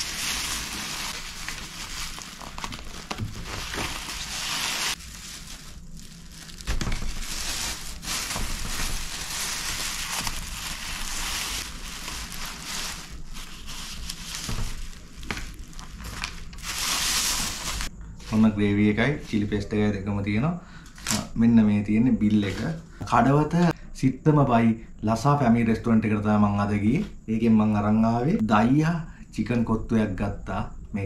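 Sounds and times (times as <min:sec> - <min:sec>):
plastic bag crinkling: 0:00.0 - 0:17.9.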